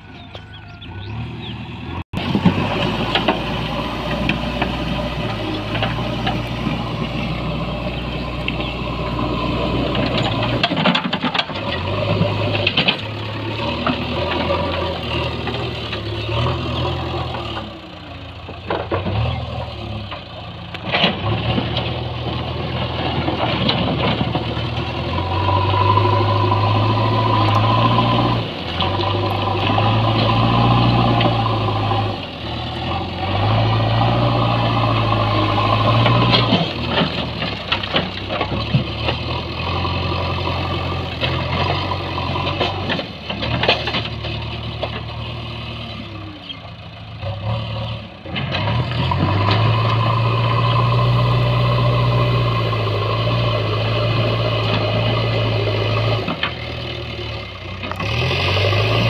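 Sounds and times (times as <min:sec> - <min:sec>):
diesel engine revving: 0:00.0 - 0:59.0.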